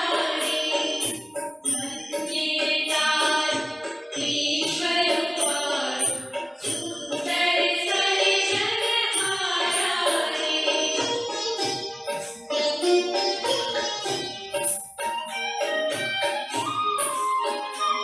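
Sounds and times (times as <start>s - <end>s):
person singing: 0.0s - 13.9s
instrumental accompaniment: 0.0s - 18.0s.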